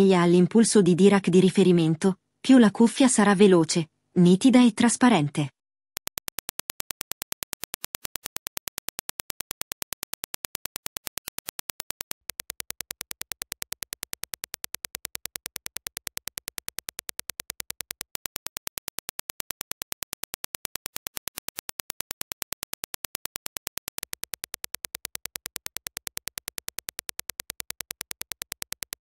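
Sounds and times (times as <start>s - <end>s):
rapid sharp clicks: 6.0s - 29.0s.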